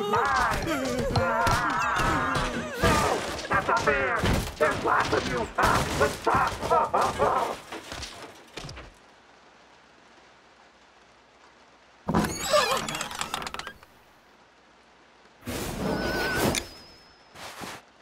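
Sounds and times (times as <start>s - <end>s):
cartoon squeals and cries: 0.0s - 3.4s, 12.2s - 13.5s.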